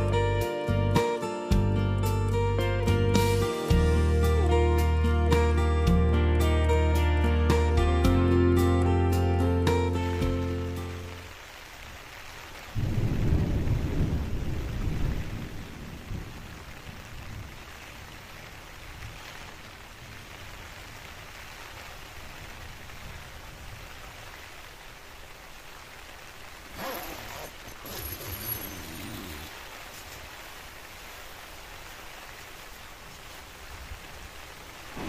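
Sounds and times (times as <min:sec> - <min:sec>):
rain on a tent: 0:00.0 - 0:35.0.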